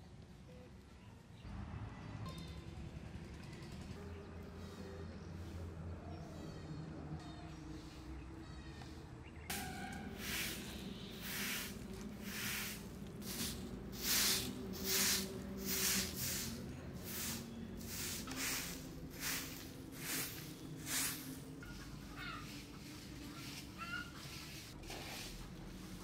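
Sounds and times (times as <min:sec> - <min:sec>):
broom sweeping earthen floor: 0:08.8 - 0:26.0.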